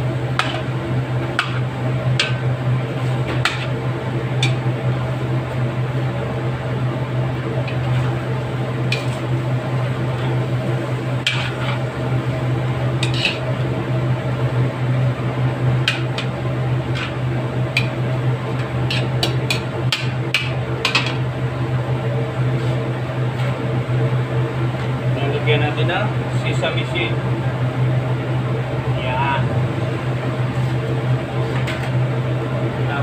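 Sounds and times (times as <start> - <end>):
steady low hum: 0.0 - 33.0
metal spoon scraping a wok: 11.3 - 11.8, 13.0 - 13.4, 18.9 - 19.2.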